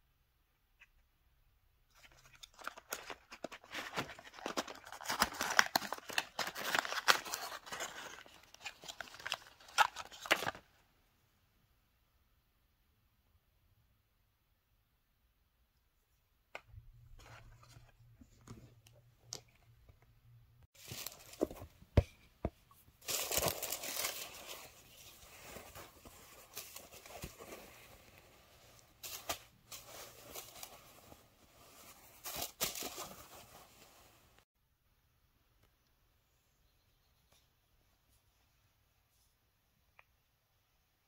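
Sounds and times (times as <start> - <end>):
paper and cloth rustling: 22.9 - 34.4.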